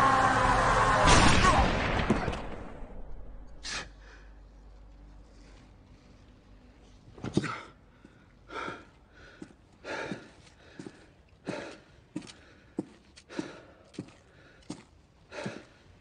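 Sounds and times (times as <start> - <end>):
man gasping breaths: 7.5 - 14.7, 15.3 - 16.0.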